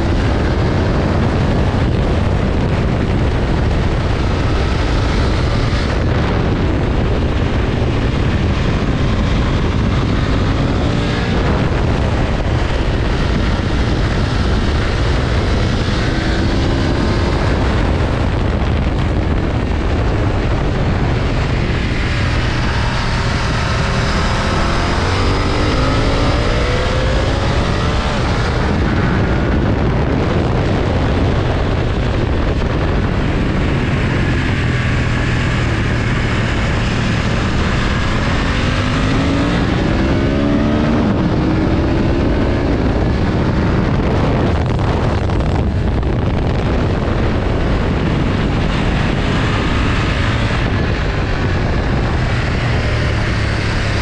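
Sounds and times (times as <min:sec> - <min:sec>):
motorcycle engine running: 0:00.0 - 0:54.0
wind noise: 0:00.0 - 0:54.0.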